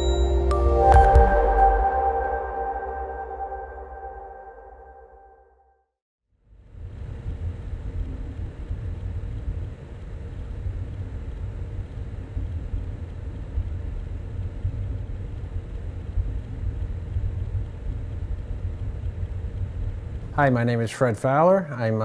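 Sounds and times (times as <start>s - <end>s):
faint steady hum: 6.4s - 22.0s
steady low rumble: 6.4s - 22.0s.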